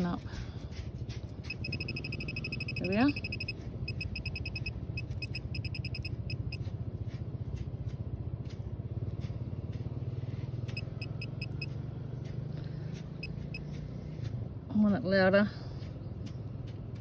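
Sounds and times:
steady low rumble: 0:00.0 - 0:17.0
pinpointer short high beeps: 0:01.4 - 0:06.6, 0:10.7 - 0:11.7.

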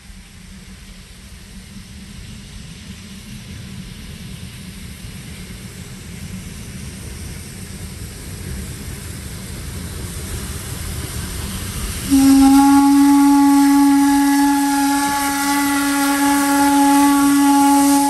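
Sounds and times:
hiss of steam venting: 0:00.0 - 0:18.0
steam locomotive rumbling: 0:00.0 - 0:18.0
steam whistle blast: 0:12.1 - 0:18.0.

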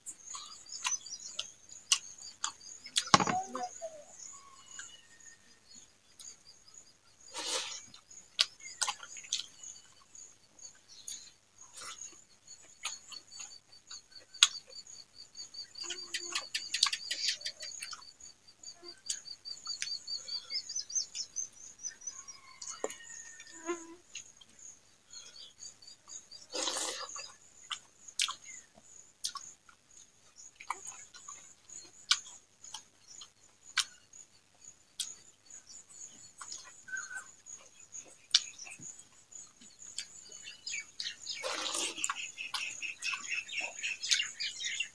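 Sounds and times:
rushing slurp or breath: 0:26.6 - 0:27.1, 0:41.4 - 0:42.1.

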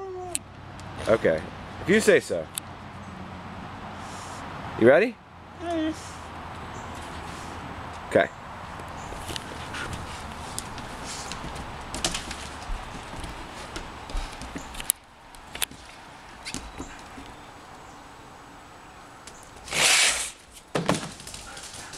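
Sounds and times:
footsteps on wooden deck: 0:06.8 - 0:08.0, 0:08.6 - 0:17.7
dog claws on wooden deck: 0:08.7 - 0:17.5, 0:19.2 - 0:21.9.

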